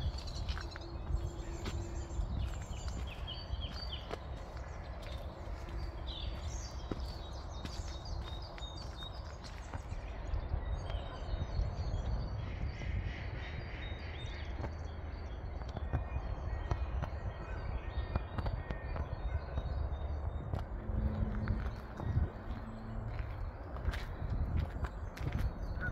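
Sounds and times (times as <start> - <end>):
footsteps on a path: 0.0 - 11.0, 14.4 - 25.9
small birds chirping: 0.0 - 25.9
low rumble: 19.5 - 25.8.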